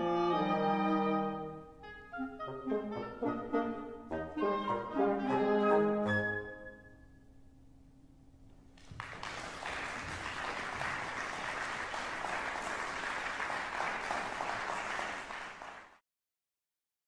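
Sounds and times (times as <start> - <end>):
audience applause: 8.8 - 16.0.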